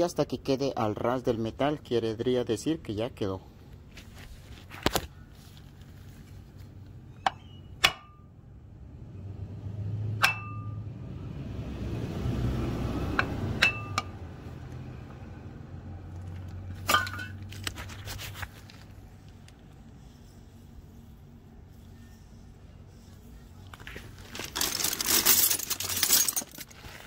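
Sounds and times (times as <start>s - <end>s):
metal tools clinking: 24.2s - 27.0s.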